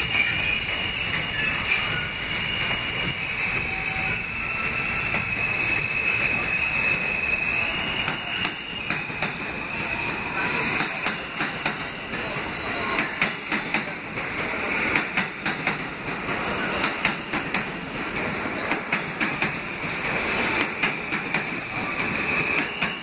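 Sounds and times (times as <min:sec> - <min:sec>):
high wheel squeal: 0:00.0 - 0:14.8, 0:20.2 - 0:23.0
subway wheels clacking over joints: 0:00.0 - 0:23.0.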